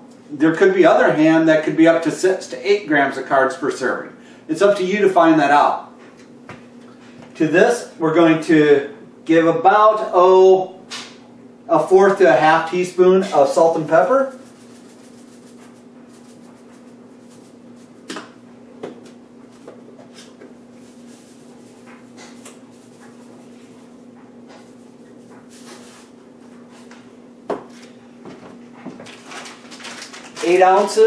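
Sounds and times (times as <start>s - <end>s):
steady hum: 0.0s - 31.0s
salt and pepper shaking: 13.8s - 18.1s, 20.7s - 24.0s, 24.6s - 26.1s.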